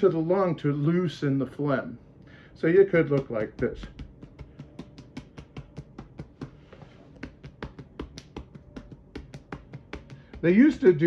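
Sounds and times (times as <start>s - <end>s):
fingers tapping on back: 3.0s - 11.0s.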